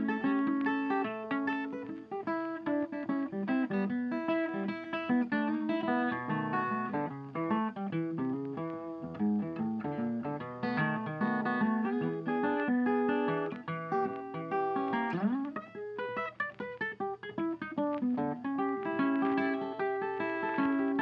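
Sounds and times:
acoustic guitar playing: 0:00.0 - 0:21.0.

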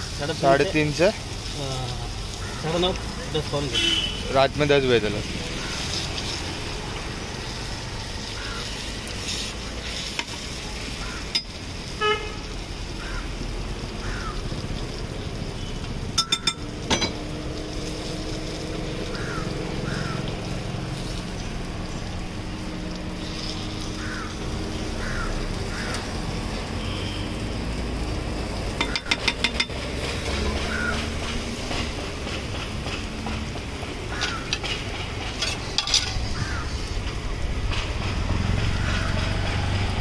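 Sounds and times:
street traffic hiss: 0:00.0 - 0:40.0
vehicle horn toot: 0:03.7 - 0:04.4, 0:12.0 - 0:12.5, 0:26.7 - 0:27.5
sharp clinks: 0:16.2 - 0:17.2.

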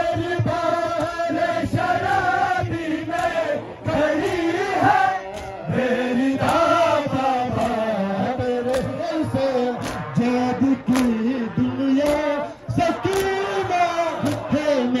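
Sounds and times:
men chanting a lament: 0:00.0 - 0:15.0
chest-beating slaps: 0:04.2 - 0:04.6, 0:05.3 - 0:05.6, 0:09.8 - 0:10.1, 0:10.9 - 0:11.2, 0:12.0 - 0:12.3, 0:13.1 - 0:13.4, 0:14.2 - 0:14.5.

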